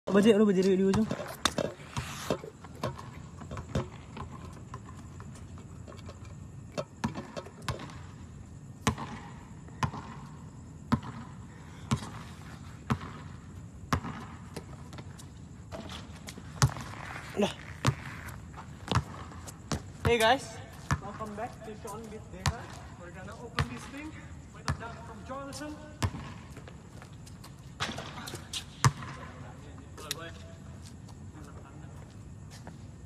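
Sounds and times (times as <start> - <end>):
basketball bouncing on hard court: 0.1 - 2.1, 2.8 - 5.0, 6.8 - 8.1, 8.8 - 15.0, 15.7 - 21.4, 22.4 - 22.9, 23.5 - 25.2, 26.0 - 26.7, 27.8 - 29.3.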